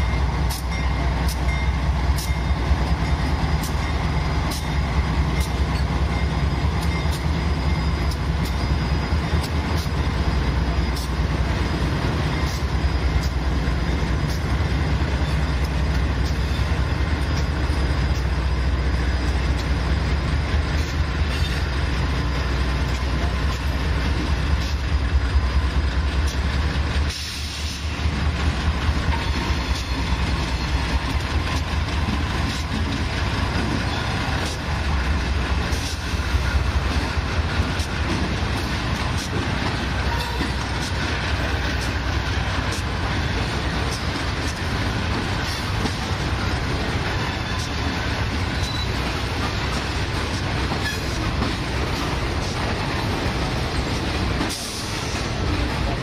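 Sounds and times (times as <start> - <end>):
railroad cars rumbling: 0.0 - 56.0
wheels clicking over rail joints: 28.4 - 56.0.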